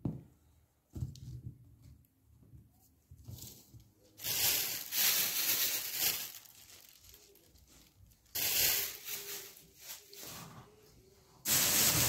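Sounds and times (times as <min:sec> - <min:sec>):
paper towel tearing and crinkling: 0:04.2 - 0:10.5, 0:11.5 - 0:12.0.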